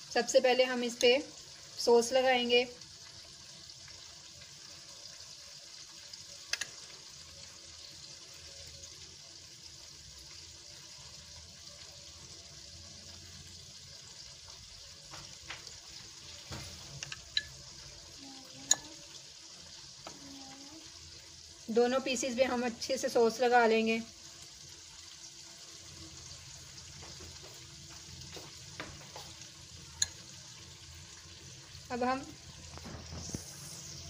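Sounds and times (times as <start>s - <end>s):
steady hiss: 32.6s - 34.0s.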